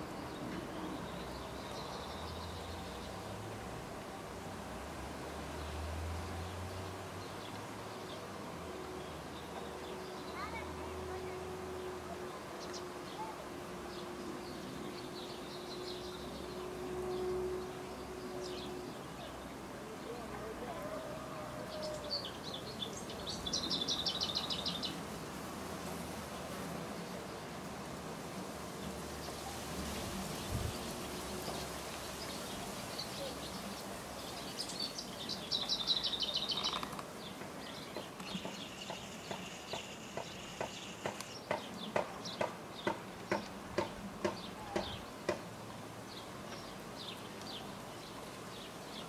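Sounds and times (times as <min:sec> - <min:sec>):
small birds chirping: 0:09.0 - 0:25.2, 0:28.7 - 0:49.0
bird chirps: 0:31.4 - 0:43.0.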